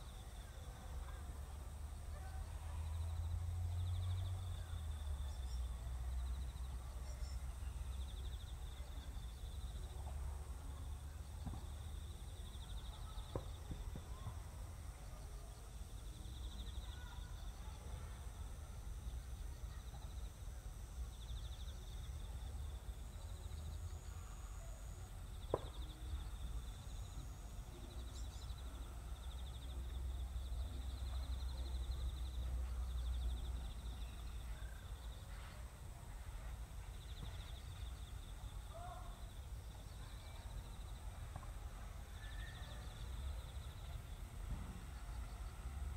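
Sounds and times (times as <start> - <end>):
insects chirring: 15.7 - 35.8.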